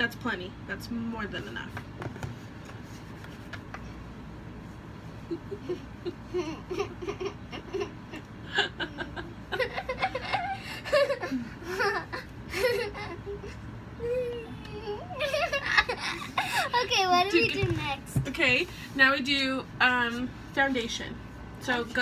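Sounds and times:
girl and woman laughing: 0:05.2 - 0:17.2.

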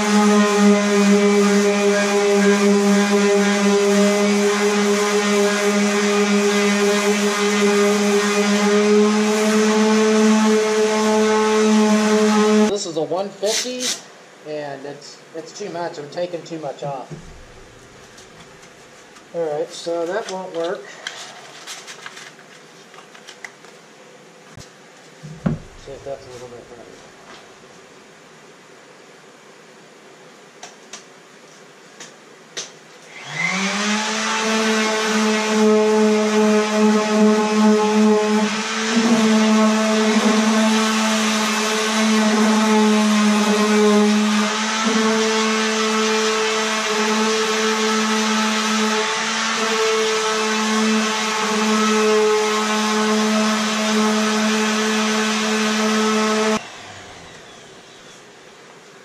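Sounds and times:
orbital sander whining: 0:00.0 - 0:12.7, 0:33.1 - 0:58.3.

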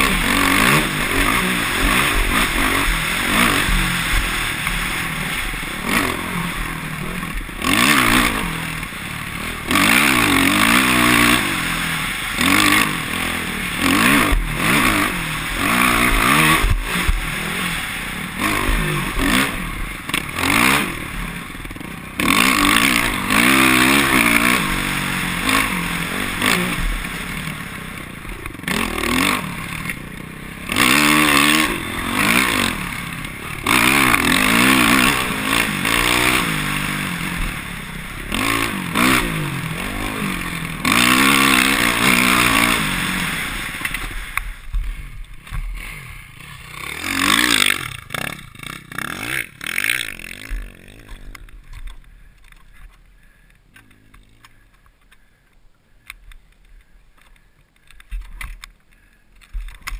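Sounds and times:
dirt bike engine revving: 0:00.0 - 0:55.4.

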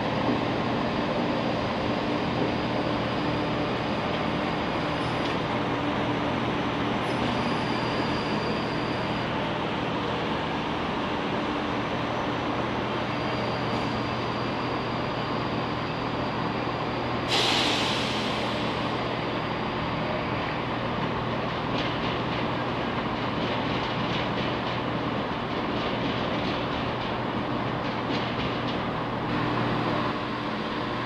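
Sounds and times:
train rumbling: 0:00.0 - 0:31.0
sharp hiss of air: 0:17.2 - 0:19.2.

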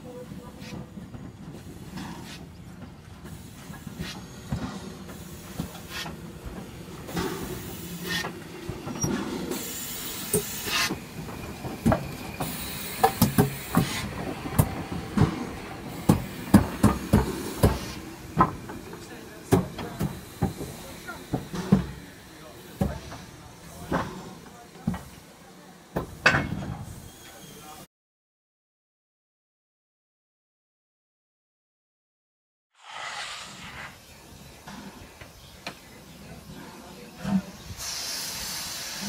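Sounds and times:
steam locomotive rumbling: 0:00.0 - 0:27.8, 0:32.8 - 0:39.0
steam hissing: 0:03.2 - 0:25.9, 0:32.8 - 0:39.0.

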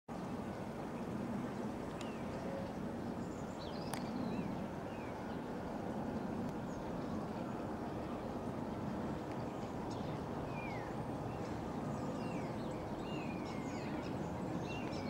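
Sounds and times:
low outdoor rumble: 0:00.1 - 0:15.0
small birds chirping: 0:03.2 - 0:05.4, 0:09.3 - 0:15.0.

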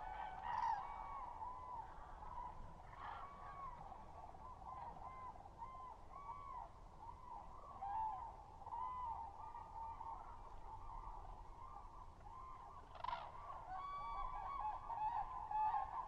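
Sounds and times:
cranes trumpeting calls: 0:00.0 - 0:01.3, 0:12.8 - 0:16.0.

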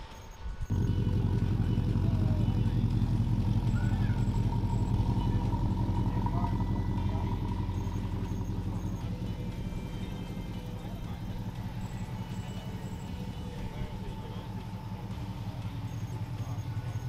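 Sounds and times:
car engine idling: 0:00.6 - 0:17.0.

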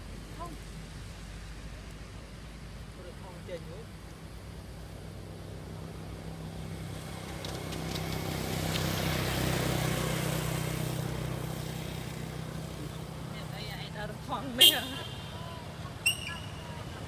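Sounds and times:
vehicle passing on road: 0:00.0 - 0:17.0.

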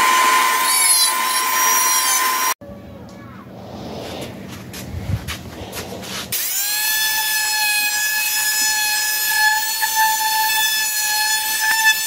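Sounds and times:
oscillating multi-tool whine: 0:00.0 - 0:02.6.

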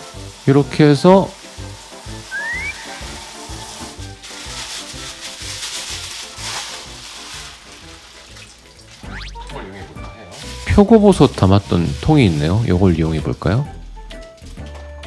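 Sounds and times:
tap water running: 0:00.0 - 0:09.6
background music: 0:00.0 - 0:15.0
plastic bag crinkling: 0:01.4 - 0:09.6, 0:10.3 - 0:13.5.

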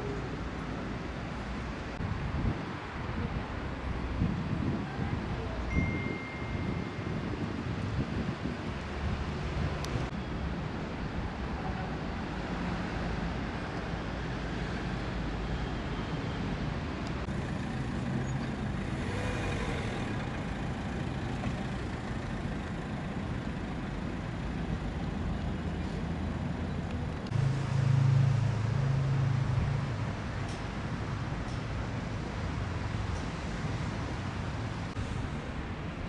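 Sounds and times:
rumble of passing vehicles: 0:00.0 - 0:36.0
vehicle engine: 0:11.4 - 0:36.0.

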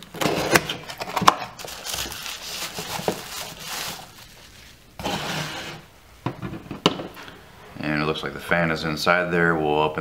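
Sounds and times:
bubble wrap crinkling: 0:00.0 - 0:05.0.

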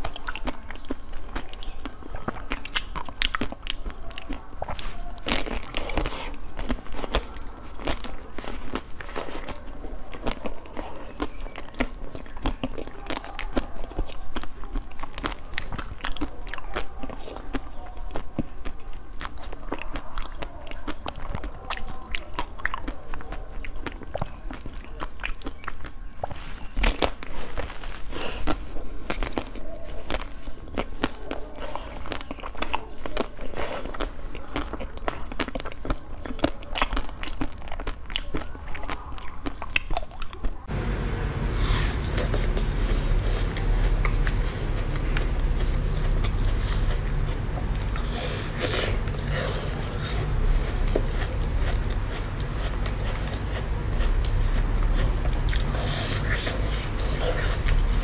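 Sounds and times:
crunchy chewing: 0:00.0 - 0:58.0
low rumble: 0:40.7 - 0:58.0.

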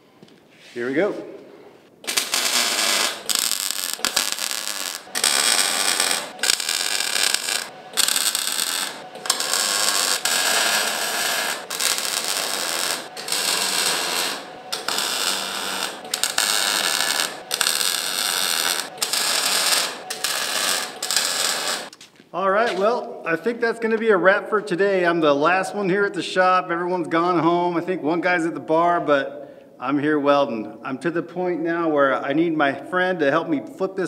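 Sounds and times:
crackling arc welds: 0:02.0 - 0:22.0.

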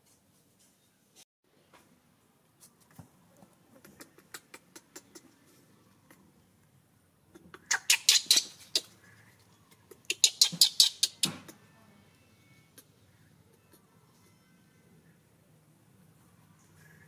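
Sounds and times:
baby monkey shrill squeaks: 0:07.7 - 0:08.9, 0:10.0 - 0:11.6.

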